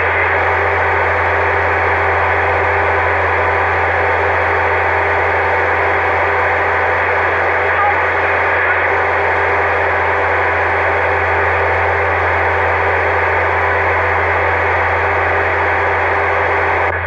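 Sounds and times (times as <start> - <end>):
low hum: 0.0 - 17.0
radio loudspeaker hiss: 0.0 - 17.0.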